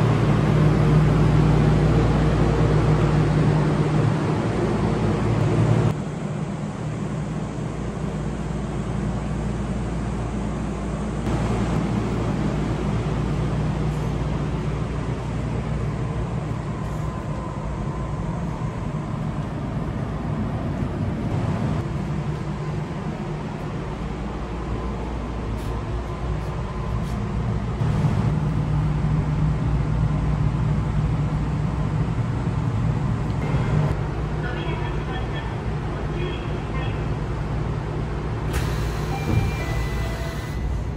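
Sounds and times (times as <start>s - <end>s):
monorail electrical hum: 0.0s - 40.9s.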